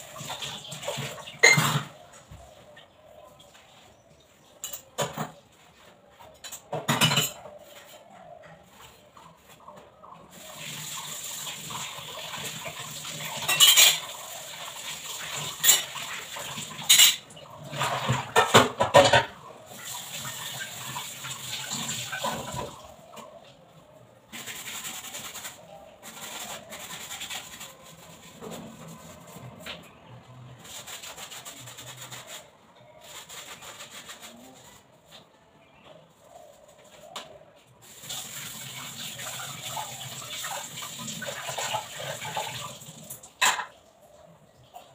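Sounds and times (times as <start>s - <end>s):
tap water running into sink: 10.4s - 22.9s, 38.0s - 43.7s
utensils clinking: 13.4s - 14.2s, 16.8s - 17.3s.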